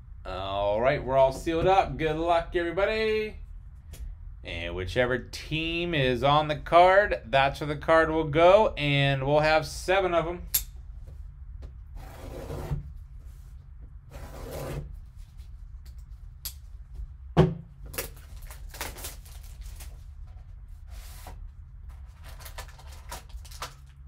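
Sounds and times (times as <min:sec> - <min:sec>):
sharp click: 0:10.5 - 0:10.7
plastic wrap rustling: 0:17.9 - 0:24.0
knife slitting plastic wrap: 0:18.0 - 0:19.9.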